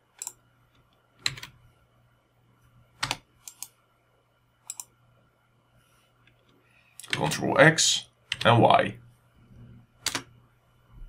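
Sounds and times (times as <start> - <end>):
keyboard and mouse clicks: 0.1 - 1.6, 3.0 - 3.8, 4.6 - 4.9, 8.3 - 8.6, 10.0 - 10.3.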